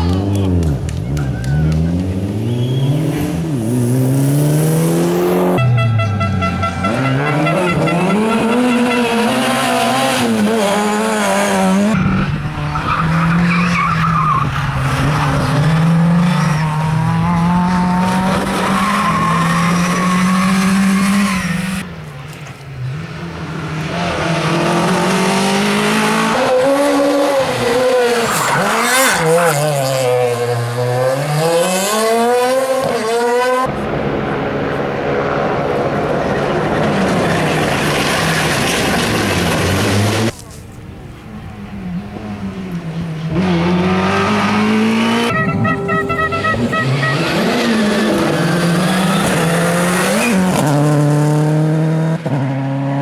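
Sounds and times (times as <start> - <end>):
rally car engines revving: 0.0 - 53.0
tyres squealing and skidding: 5.6 - 21.8, 26.1 - 30.8, 43.4 - 50.7.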